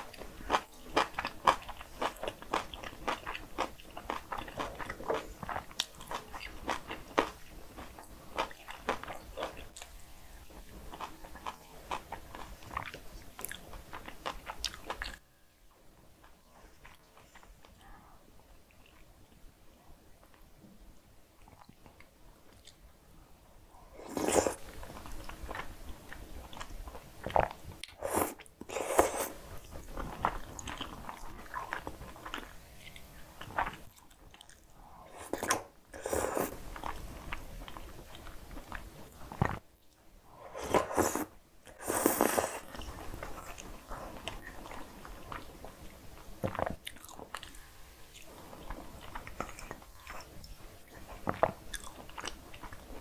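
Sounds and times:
slurping noodles: 28.0 - 29.4, 35.1 - 36.6, 40.4 - 43.0.

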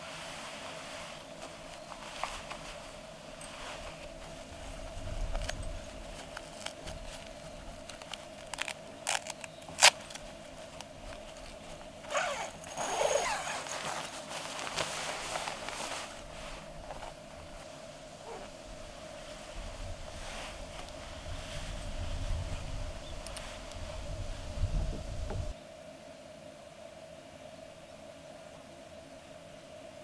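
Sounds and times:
nylon rustling: 0.0 - 24.3
zipper pulled open: 5.3 - 17.2, 18.2 - 18.6
zipper clicks: 7.9 - 10.2, 10.8 - 14.9.

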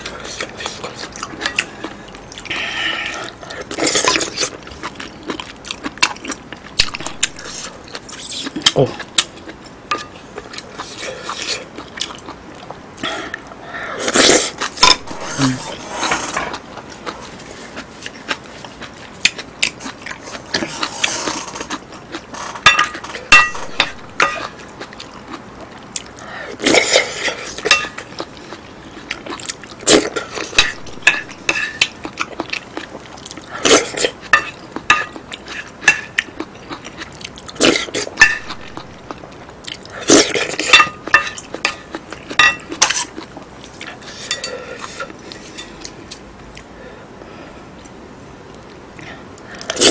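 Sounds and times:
chewing and slurping: 0.0 - 46.7
utensils clinking on ceramic plates: 22.6 - 24.5, 30.1 - 31.9, 40.4 - 43.2, 44.1 - 45.9.

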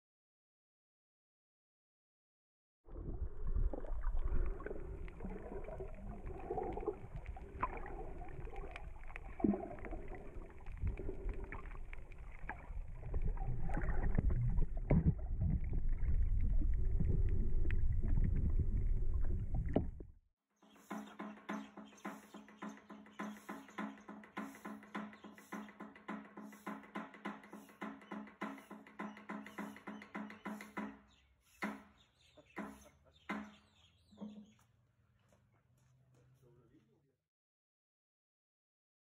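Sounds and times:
muffled underwater water noise: 2.9 - 20.1
underwater clicks and knocks: 3.7 - 20.1, 20.9 - 31.0
percussive music: 20.7 - 31.0.

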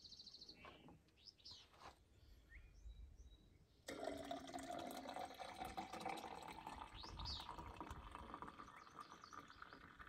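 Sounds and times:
coffee pouring into a metal tumbler: 3.9 - 10.0.

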